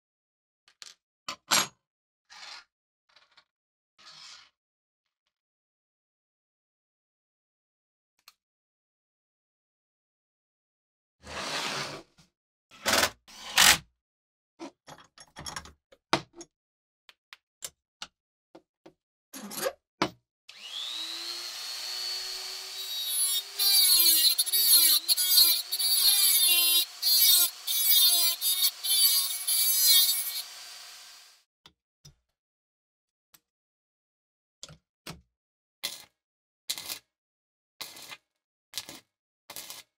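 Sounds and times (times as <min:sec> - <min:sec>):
rotary tool cutting steel: 0:20.5 - 0:31.4.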